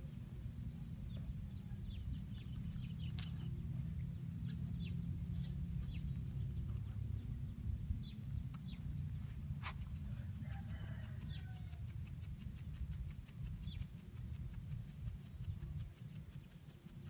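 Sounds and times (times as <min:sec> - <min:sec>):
low rumble: 0:00.0 - 0:10.4
steady high whine: 0:00.0 - 0:10.6
faint chicken cluck: 0:08.5 - 0:16.6.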